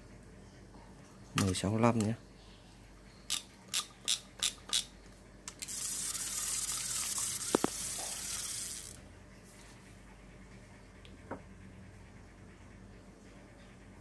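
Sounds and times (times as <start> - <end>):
fishing reel clicks: 3.3 - 4.9, 5.5 - 9.0
fishing reel hissing: 5.6 - 9.0.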